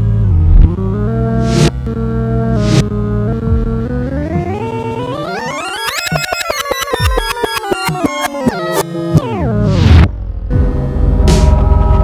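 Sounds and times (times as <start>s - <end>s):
low drone: 0.0s - 4.2s, 10.0s - 12.0s
synthesizer chord sliding down: 0.0s - 6.5s.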